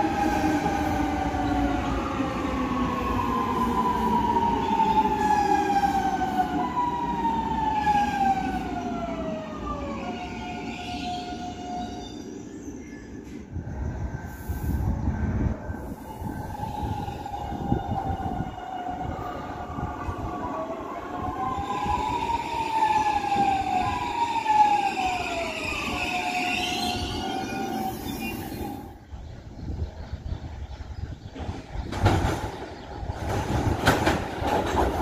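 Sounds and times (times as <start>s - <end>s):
train wheels rumbling on rail: 12.8s - 35.0s
electric train whine gliding in pitch: 15.0s - 31.0s.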